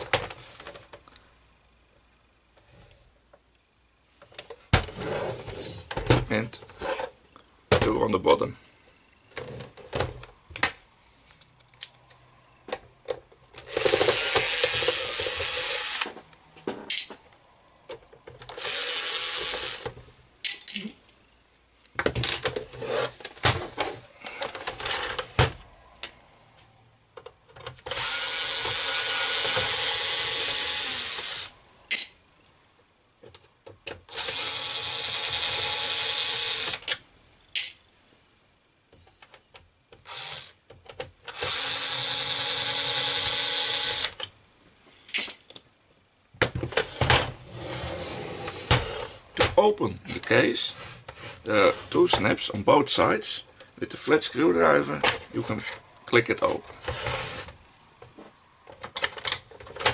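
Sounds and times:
electric screwdriver running: 13.7 - 16.1, 18.5 - 19.8, 27.9 - 31.5, 34.1 - 36.8, 40.1 - 40.5, 41.3 - 44.2.

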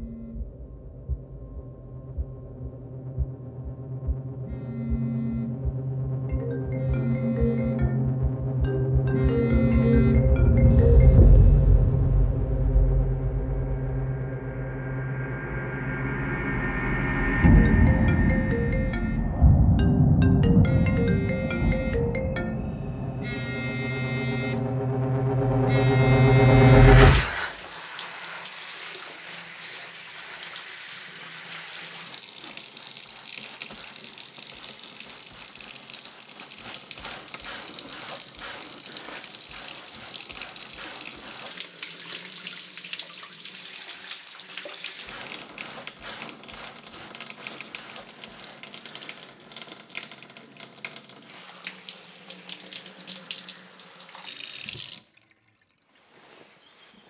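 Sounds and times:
shower water spraying: 27.0 - 55.1.

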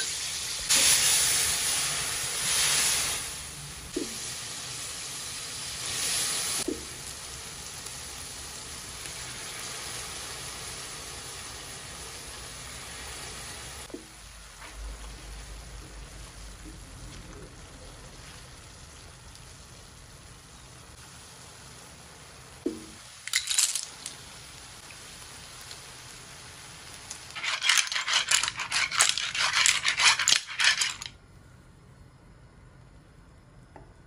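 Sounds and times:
simmering pan hiss: 0.0 - 29.6
clams clinking in a metal pan: 23.3 - 24.1, 27.3 - 31.1.

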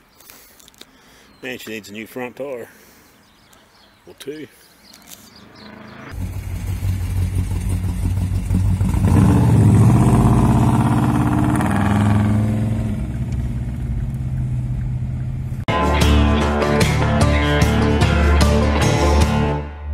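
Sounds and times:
car engine accelerating: 5.3 - 15.7.

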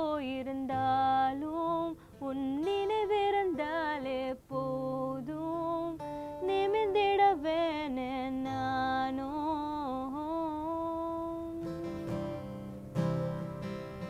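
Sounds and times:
woman singing wordless note: 0.0 - 12.2
acoustic guitar strummed: 0.0 - 14.0.

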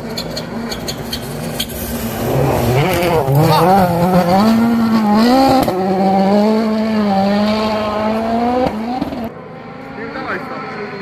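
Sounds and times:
rally car engine revving: 0.2 - 11.0.

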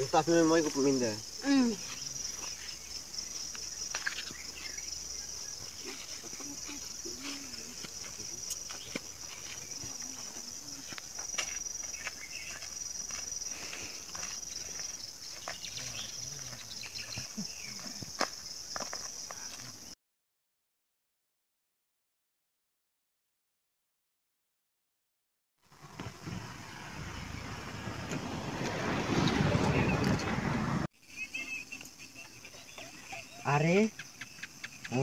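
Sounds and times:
crickets chirring: 0.0 - 20.0, 25.7 - 35.0
footsteps: 1.8 - 19.9.

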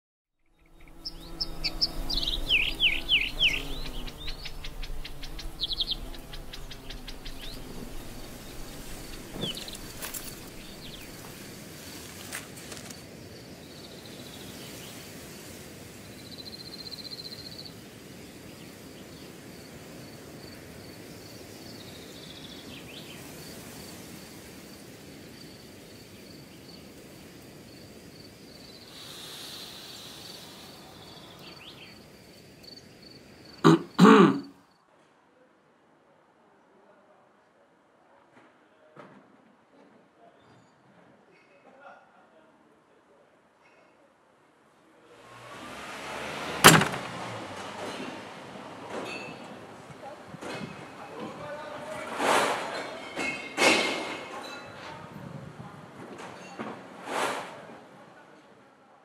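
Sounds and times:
bird chirping: 0.4 - 11.5, 28.5 - 34.5
faint hiss: 0.8 - 33.7, 49.7 - 55.7.

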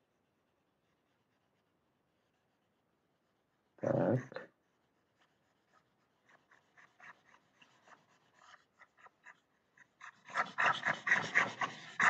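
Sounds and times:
pen scratching on graphics tablet: 5.2 - 12.0.

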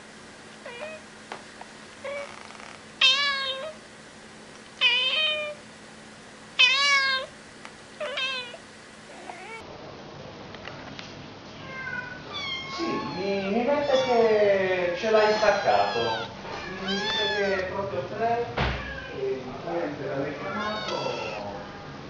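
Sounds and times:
cat meowing: 0.6 - 1.0, 2.0 - 3.8, 4.8 - 5.6, 6.6 - 7.3, 8.0 - 9.6, 11.6 - 14.4, 15.1 - 17.7, 18.7 - 19.2, 20.4 - 21.9.

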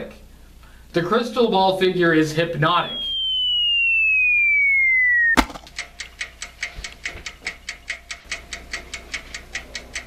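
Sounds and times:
electronic tone falling in pitch: 2.9 - 5.6
sharp hit: 5.4 - 5.7
clock ticking fast: 5.7 - 10.0.

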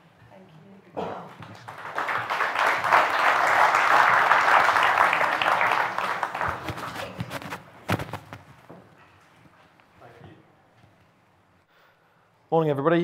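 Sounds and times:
audience applauding: 1.4 - 7.4.

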